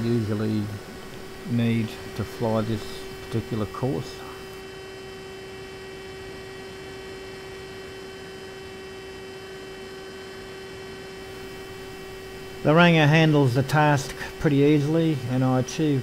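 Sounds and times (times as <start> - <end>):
low hiss: 0.0 - 4.6
electrical hum: 0.0 - 16.0
high whining tones: 0.0 - 16.0.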